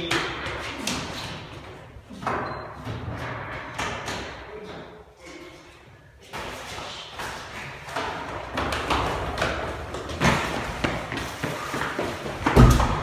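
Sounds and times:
footsteps running down stairs: 6.3s - 13.0s.

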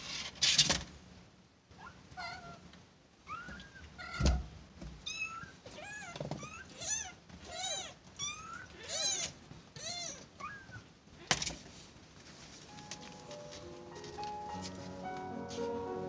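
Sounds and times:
kittens mewing: 5.1s - 11.6s.

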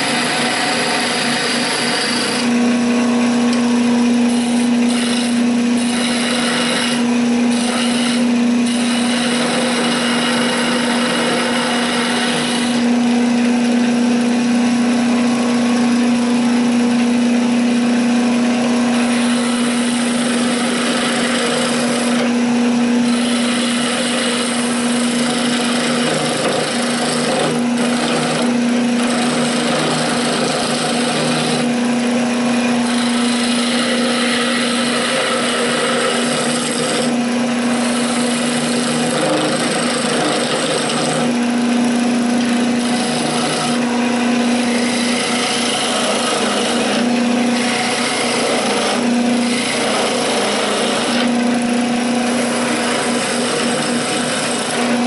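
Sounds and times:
wood lathe humming: 0.0s - 55.0s
chisel cutting wood hiss: 4.3s - 12.8s, 23.1s - 31.6s.

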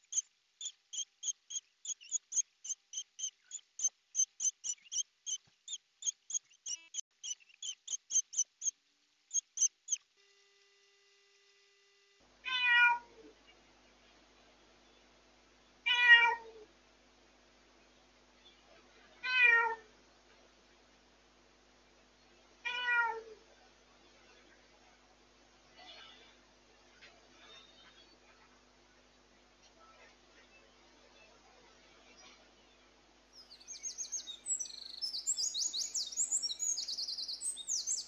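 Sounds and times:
cat meowing loudly: 12.5s - 13.1s, 15.9s - 16.6s, 19.2s - 19.9s, 22.7s - 23.4s.

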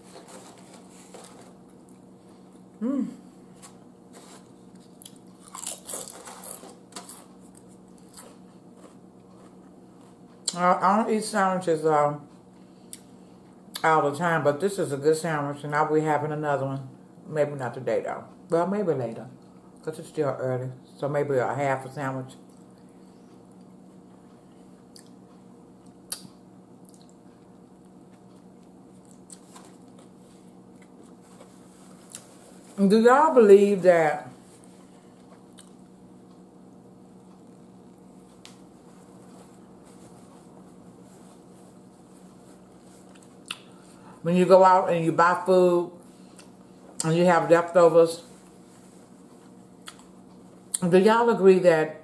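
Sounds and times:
potato chips crunching: 3.6s - 10.5s, 28.2s - 32.8s
wet chewing sounds: 34.6s - 35.9s, 42.2s - 43.8s, 49.8s - 50.8s.

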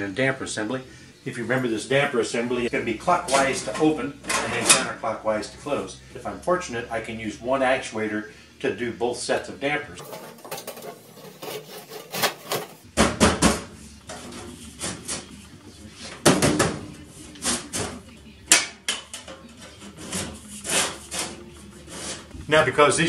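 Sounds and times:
metal scraping: 10.0s - 12.9s, 19.1s - 22.4s.

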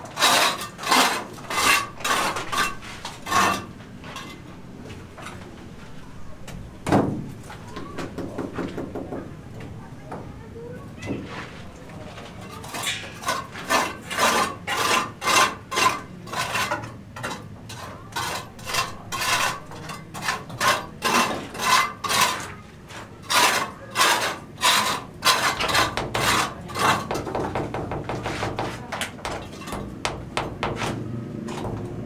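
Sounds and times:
metal trowel scraping brickwork: 0.0s - 4.4s, 12.3s - 32.0s.

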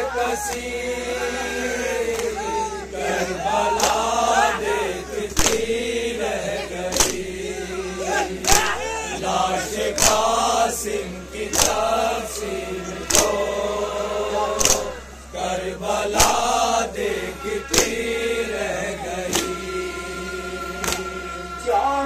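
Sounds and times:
men chanting a lament: 0.0s - 22.0s
hand strikes on chest: 5.4s - 5.7s, 6.9s - 7.2s, 10.0s - 10.2s, 11.5s - 11.8s, 14.6s - 14.9s.

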